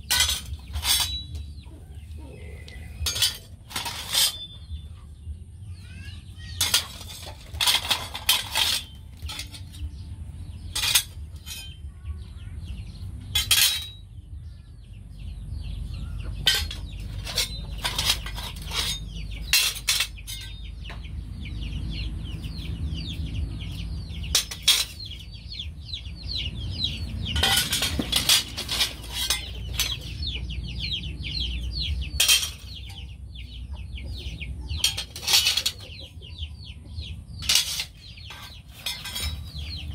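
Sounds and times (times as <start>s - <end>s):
metal cleavers clinking together: 0.0s - 1.4s, 3.0s - 4.5s, 6.5s - 9.8s, 10.7s - 11.8s, 13.3s - 14.0s, 16.4s - 20.6s, 24.3s - 25.1s, 27.3s - 30.1s, 32.2s - 33.0s, 34.8s - 36.0s, 37.4s - 39.9s
birds chirping rapidly: 0.0s - 39.9s.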